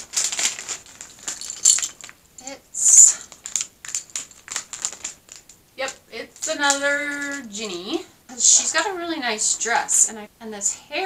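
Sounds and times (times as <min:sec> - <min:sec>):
foil bag crinkling and tearing: 0:00.0 - 0:07.9.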